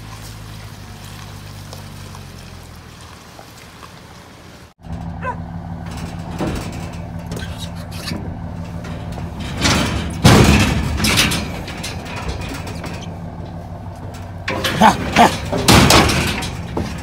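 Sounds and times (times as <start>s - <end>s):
truck engine idling: 0.0s - 17.0s
metal trailer gates clanking: 4.8s - 17.0s.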